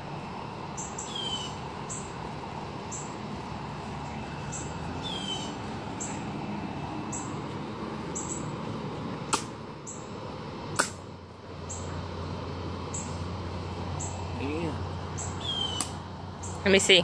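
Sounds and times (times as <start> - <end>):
outdoor background noise: 0.0 - 17.0
falling bird chirp: 4.4 - 6.2, 15.1 - 16.6.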